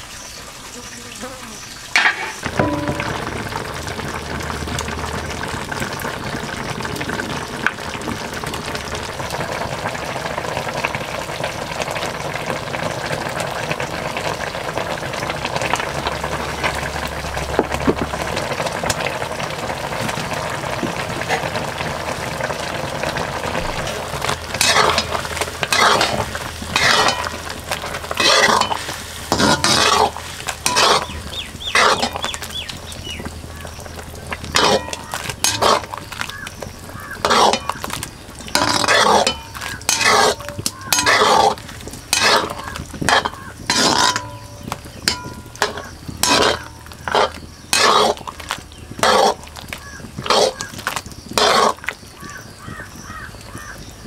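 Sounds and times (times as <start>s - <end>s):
mushrooms sizzling in a pan: 0.0s - 54.0s
ladle scraping against pan: 2.0s - 3.5s, 23.7s - 32.8s, 33.6s - 51.9s.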